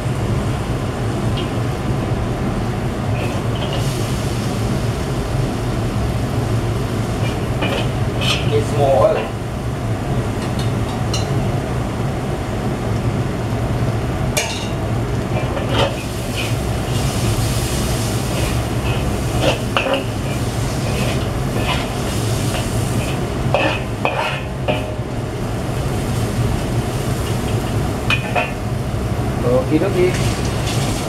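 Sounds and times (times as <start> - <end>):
steady low hum: 0.0 - 31.0
onions sizzling in oil: 0.1 - 11.6, 13.5 - 31.0
metal spatula scraping pan: 3.2 - 3.8, 7.2 - 9.3, 15.4 - 17.1, 18.2 - 25.0.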